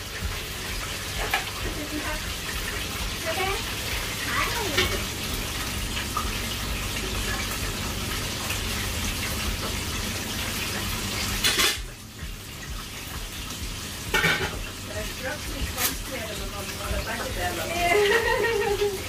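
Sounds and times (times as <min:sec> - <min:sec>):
food sizzling in a pan: 0:00.0 - 0:19.0
metal ladle clanking on pan: 0:14.1 - 0:14.6.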